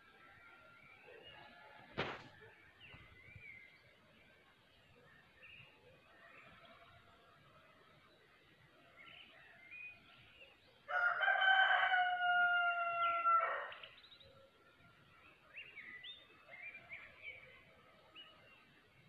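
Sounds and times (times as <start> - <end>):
small birds chirping: 0.0 - 7.0, 12.8 - 19.0
rooster crowing: 10.9 - 13.8.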